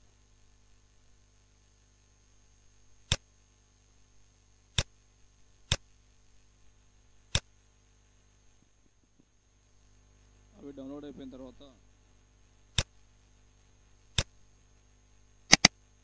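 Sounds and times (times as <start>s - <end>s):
faint electrical hum: 0.0s - 16.0s
computer mouse clicks: 15.5s - 15.7s.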